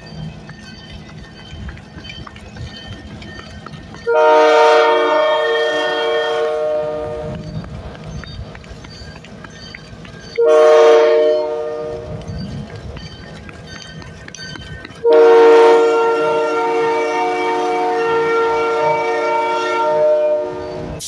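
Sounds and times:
low rumble of train: 0.0 - 21.0
locomotive air horn blasts: 4.0 - 7.4, 10.4 - 12.2, 15.0 - 21.0.

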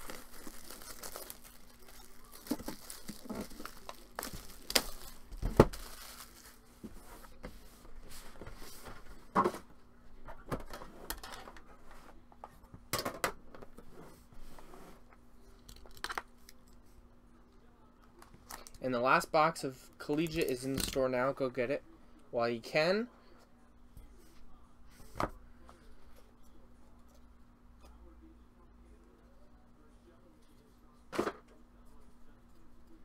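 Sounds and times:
plastic wrapping tearing and crinkling: 0.0 - 6.6.

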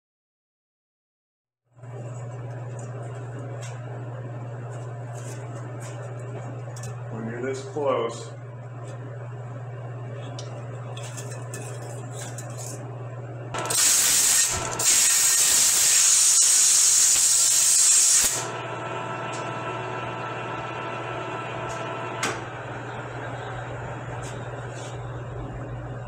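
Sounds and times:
steady low hum: 1.8 - 14.8, 18.3 - 26.0
compressed air blasting: 13.6 - 18.5.

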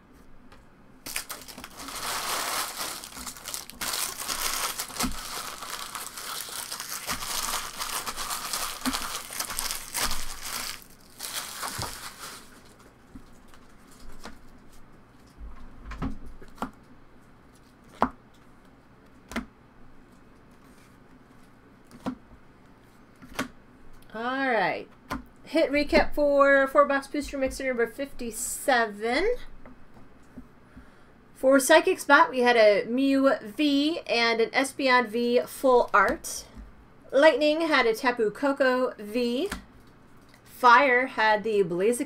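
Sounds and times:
wrappers crinkling: 1.0 - 14.6.

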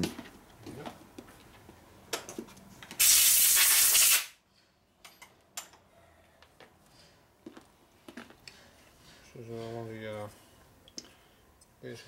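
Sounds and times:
pressurised hiss: 3.0 - 4.4.

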